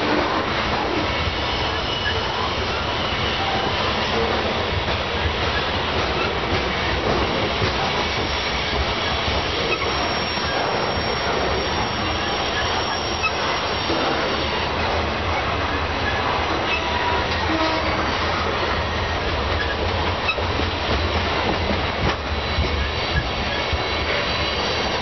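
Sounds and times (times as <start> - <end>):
steel wheels rumbling on rail: 0.0 - 25.0
wheel flange squeal: 1.1 - 4.3, 8.2 - 14.6, 22.4 - 25.0.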